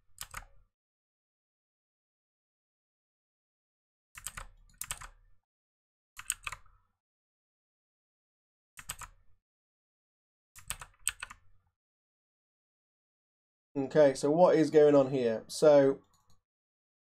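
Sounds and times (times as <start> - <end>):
computer keyboard typing: 0.2 - 0.5, 4.2 - 5.2, 6.2 - 6.7, 8.8 - 9.2, 10.6 - 11.4.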